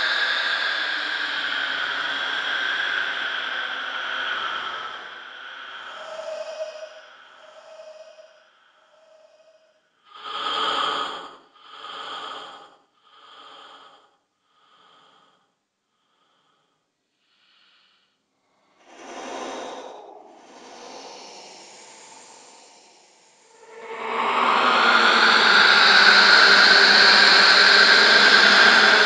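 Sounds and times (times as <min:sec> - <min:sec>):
breath trailing into hiss: 0:17.3 - 0:23.6.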